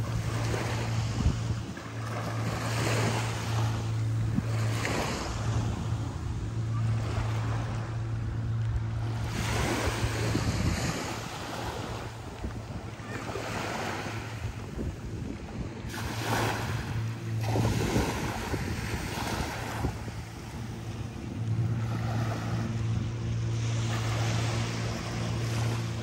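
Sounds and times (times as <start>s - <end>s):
boat engine drone: 0.0s - 26.0s
sea waves washing ashore: 0.0s - 26.0s.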